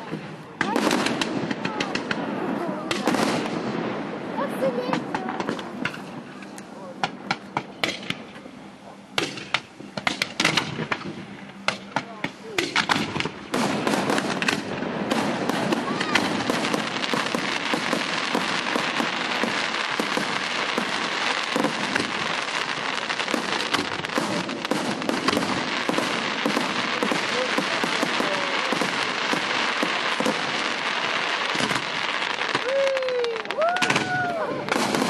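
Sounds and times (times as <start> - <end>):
fireworks crackling and popping: 0.0 - 35.0.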